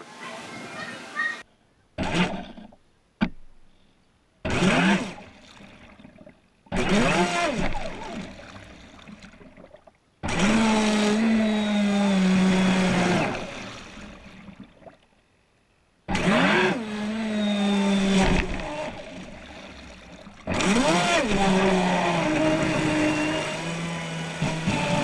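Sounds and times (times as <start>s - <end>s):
electric motor whine: 10.3s - 13.8s, 16.2s - 19.4s, 20.5s - 25.0s.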